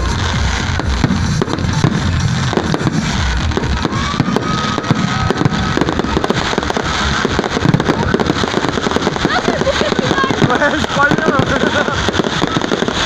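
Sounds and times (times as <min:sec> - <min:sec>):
fireworks bangs and crackling: 0:00.0 - 0:13.0
faint firework whistle: 0:02.7 - 0:09.4.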